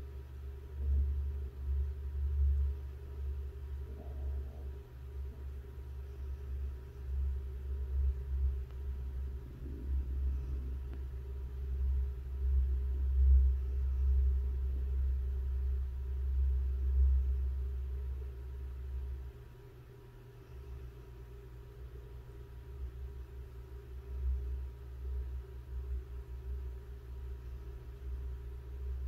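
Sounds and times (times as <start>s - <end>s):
low rumble: 0.0s - 19.3s.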